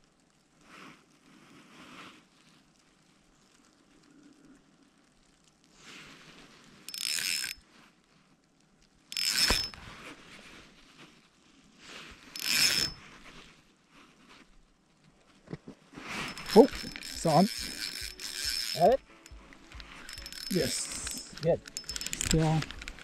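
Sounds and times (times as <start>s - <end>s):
fishing reel clicking: 6.9s - 7.6s, 9.1s - 9.8s, 12.4s - 13.0s, 16.2s - 23.0s.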